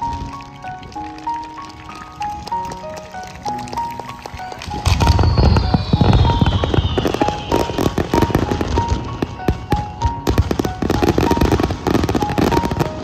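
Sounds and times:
background music: 0.0s - 13.0s
fireworks bursting and crackling: 0.0s - 13.0s
high descending whistle: 4.8s - 9.1s.

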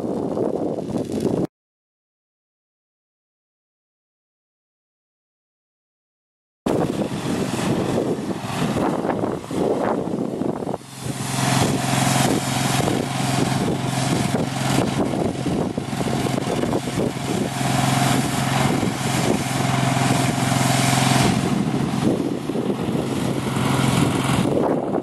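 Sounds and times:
fire truck engine running: 6.7s - 25.0s
water hissing from hose nozzle: 6.8s - 25.0s.

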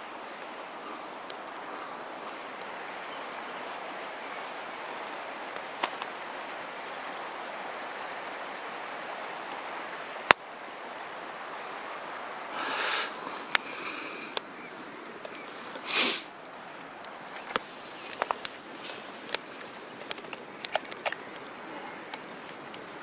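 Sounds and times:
campfire popping: 0.0s - 23.0s
open-air rushing hiss: 0.0s - 23.0s.

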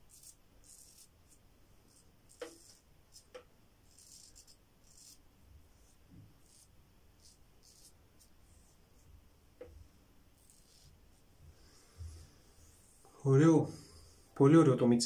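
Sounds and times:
razor scraping stubble: 0.0s - 5.2s, 5.8s - 8.8s, 10.4s - 11.0s.

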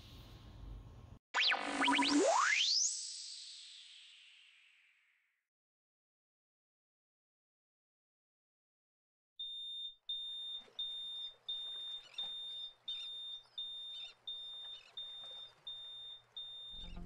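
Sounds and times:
smoke alarm beeping: 9.4s - 17.0s.

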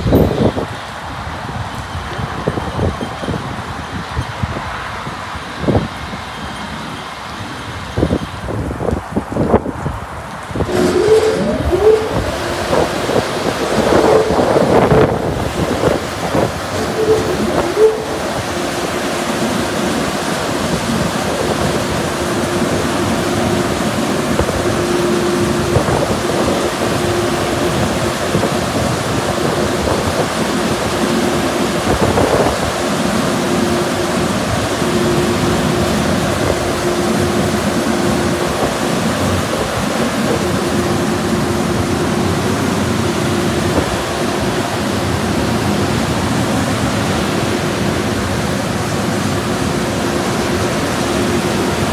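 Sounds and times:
constant hum: 10.3s - 51.9s
air dryer blowers rushing: 10.5s - 51.9s.

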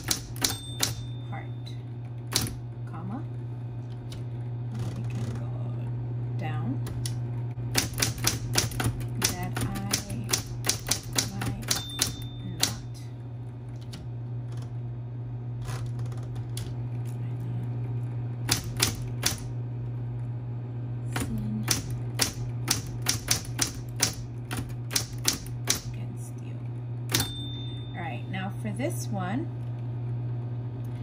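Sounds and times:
electric typewriter key clacks: 0.0s - 1.2s, 2.3s - 2.6s, 6.9s - 12.9s, 18.5s - 19.5s, 21.2s - 25.9s
typewriter motor hum: 0.0s - 1.2s, 2.0s - 2.7s, 3.8s - 5.7s, 6.8s - 13.1s, 18.4s - 19.6s, 21.0s - 26.0s.

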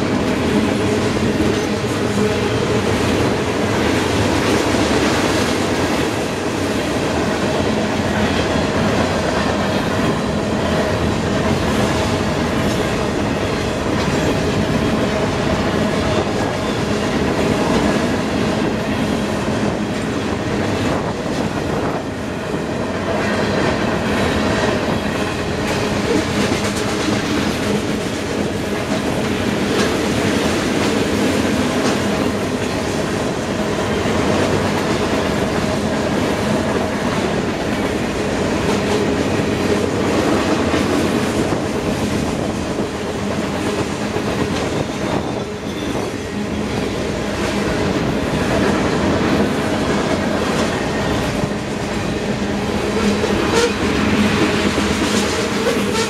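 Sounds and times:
train wheels rumbling on rail: 0.0s - 56.0s
wheels clicking over rail joints: 23.6s - 33.6s.

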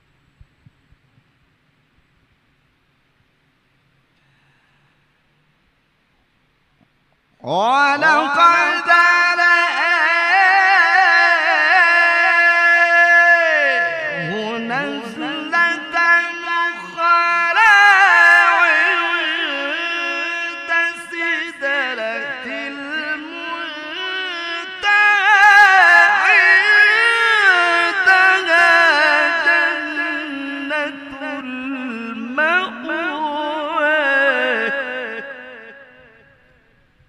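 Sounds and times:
man chanting recitation: 7.4s - 36.7s.

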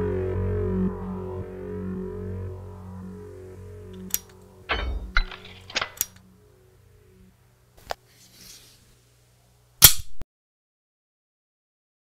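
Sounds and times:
metallic clicks of pistol parts: 4.1s - 6.2s.

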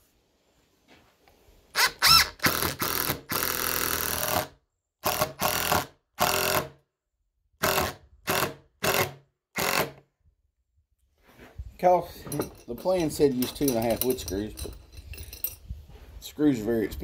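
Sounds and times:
cordless drill driving screws: 1.8s - 6.7s, 7.6s - 10.0s.

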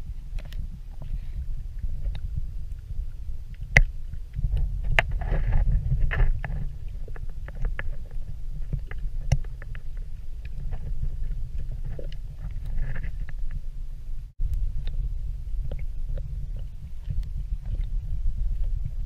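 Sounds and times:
muffled underwater rumble: 0.0s - 19.0s
sharp underwater clicks: 3.5s - 13.7s.

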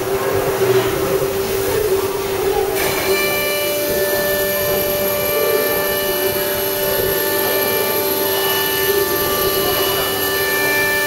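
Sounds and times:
router spindle cutting wood: 2.8s - 11.0s.

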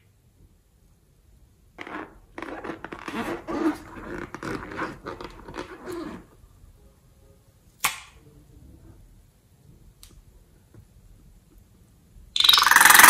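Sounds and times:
rubber balloon squeaking: 1.8s - 6.3s.

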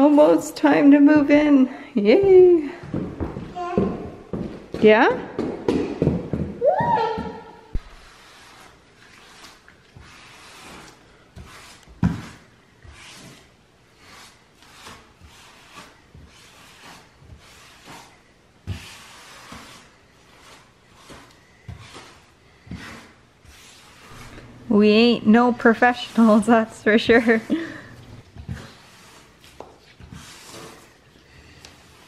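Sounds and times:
grout float scraping tiles: 7.7s - 32.0s.

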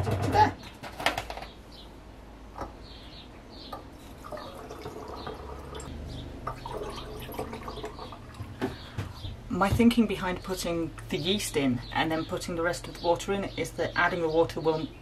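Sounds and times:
water trickling through funnel: 3.9s - 8.7s.

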